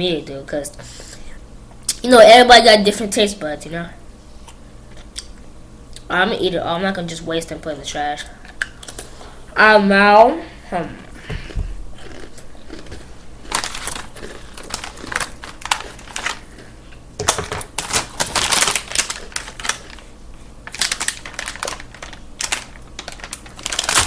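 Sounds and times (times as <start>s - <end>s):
cookie crunching while chewing: 12.0s - 16.8s, 17.8s - 20.1s, 20.7s - 24.0s
plastic package rustling: 12.1s - 24.0s.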